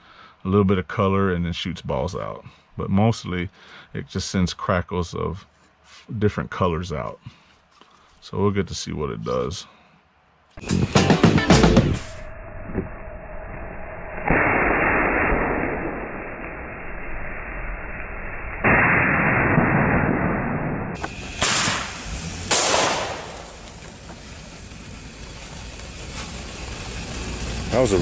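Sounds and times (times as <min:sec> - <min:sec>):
loud pops: 0:14.2 - 0:16.6, 0:18.6 - 0:24.6
fireworks fountain hissing: 0:21.0 - 0:28.0.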